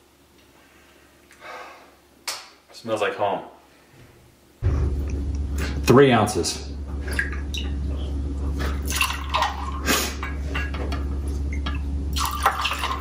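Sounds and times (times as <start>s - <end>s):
low steady hum: 3.6s - 13.0s
liquid pouring and splashing: 8.7s - 11.0s, 11.6s - 13.0s.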